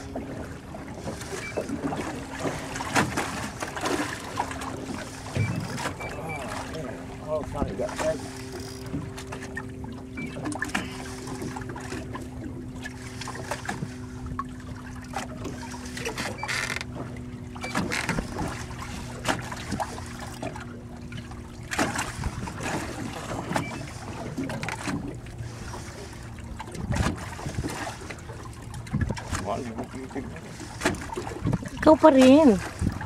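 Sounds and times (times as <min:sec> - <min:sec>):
boat engine idling: 0:00.0 - 0:33.0
water noise: 0:00.0 - 0:33.0
wind: 0:00.0 - 0:33.0.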